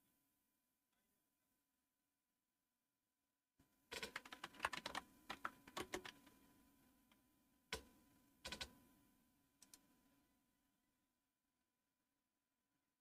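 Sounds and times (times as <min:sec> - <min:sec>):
typing on computer keyboard: 0:03.9 - 0:06.3, 0:07.7 - 0:08.8, 0:09.6 - 0:09.8.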